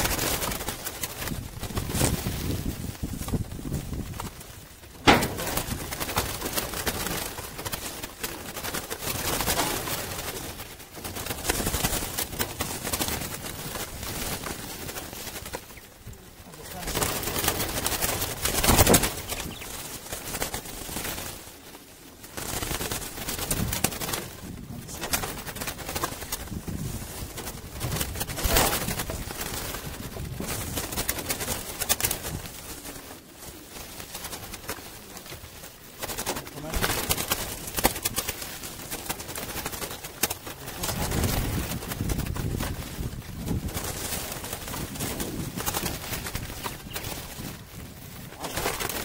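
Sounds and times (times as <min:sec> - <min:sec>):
pigeons wing flapping: 0:00.0 - 0:49.0
doves cooing: 0:04.8 - 0:26.6.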